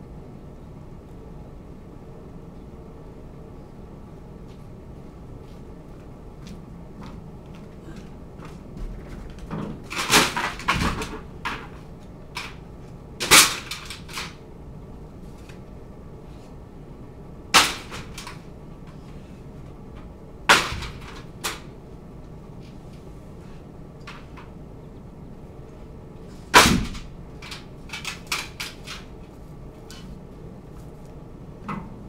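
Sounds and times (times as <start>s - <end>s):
boards clattering in truck box: 8.8s - 11.8s, 17.6s - 18.4s, 20.5s - 21.7s.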